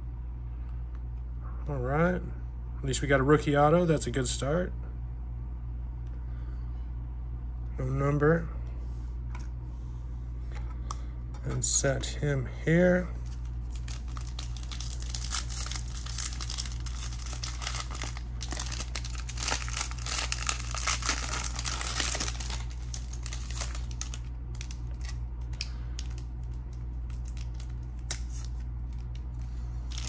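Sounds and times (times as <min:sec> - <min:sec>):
low hum: 0:00.0 - 0:30.0
foil wrapper crinkling and tearing: 0:13.2 - 0:30.0.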